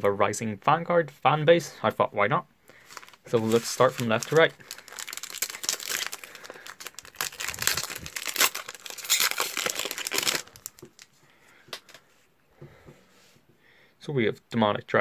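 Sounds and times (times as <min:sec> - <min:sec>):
foil wrapper tearing and crinkling: 0:02.8 - 0:11.1.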